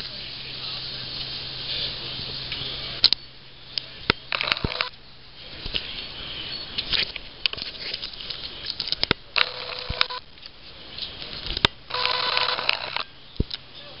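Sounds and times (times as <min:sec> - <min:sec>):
loud hissing burst with tone: 0:00.0 - 0:07.4.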